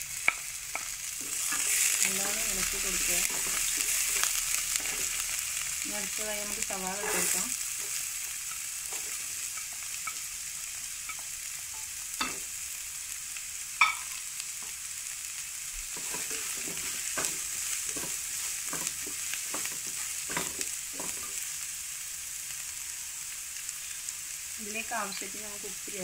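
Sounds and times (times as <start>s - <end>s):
onions sizzling in oil: 0.0s - 26.0s
spatula scraping through onions: 0.1s - 12.4s, 14.5s - 22.2s.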